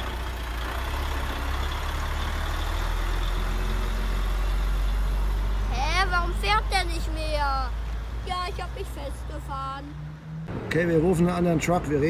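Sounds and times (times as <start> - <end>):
toy truck diesel engine revving: 0.0 - 9.6.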